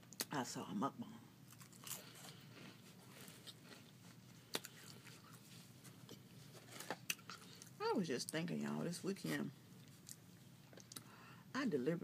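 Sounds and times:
person chewing a snack: 0:01.5 - 0:07.8, 0:09.8 - 0:11.1.

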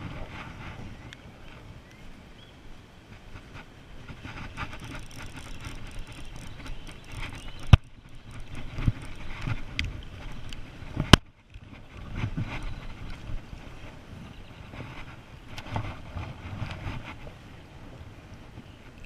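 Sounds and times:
hands handling fishing reel: 0:04.1 - 0:13.3
sharp reel clicks: 0:04.4 - 0:11.2.

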